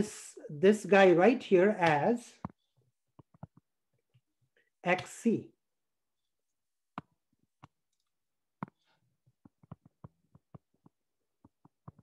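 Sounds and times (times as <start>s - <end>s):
stylus tapping on tablet screen: 1.8s - 4.2s, 6.9s - 12.0s.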